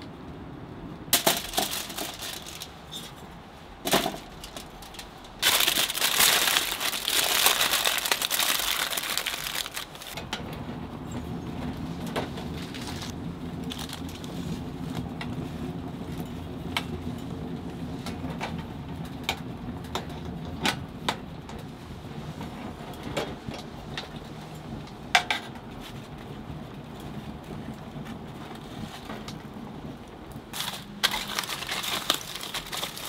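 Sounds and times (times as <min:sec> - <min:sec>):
wood fire crackling and popping: 0:04.3 - 0:10.2, 0:27.0 - 0:33.0.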